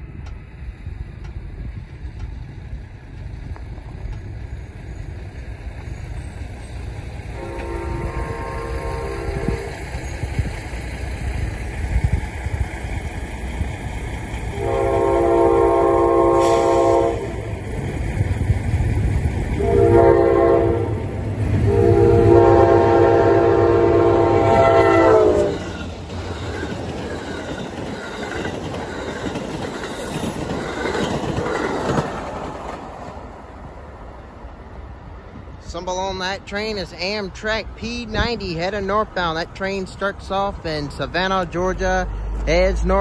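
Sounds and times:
locomotive air horn: 7.3s - 9.8s, 14.5s - 17.6s, 19.6s - 25.7s
train wheels clattering on rails: 8.8s - 19.8s, 24.4s - 33.7s
diesel engine rumble: 35.4s - 43.0s.

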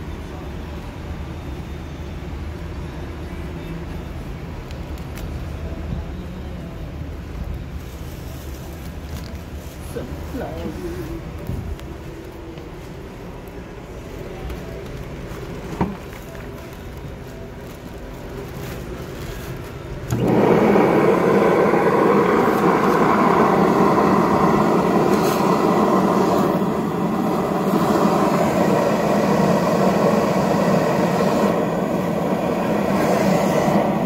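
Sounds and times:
vacuum motor running: 20.1s - 34.0s.

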